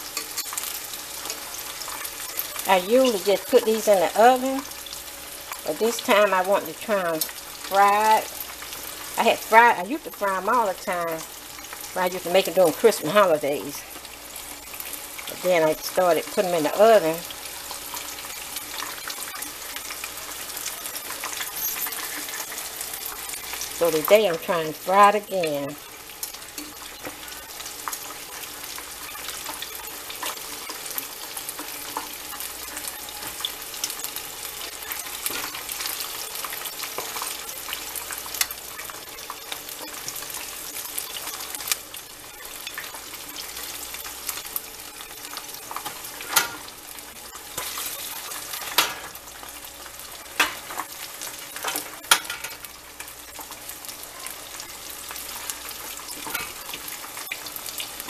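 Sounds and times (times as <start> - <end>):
chicken deep-frying in oil: 0.0 - 58.0.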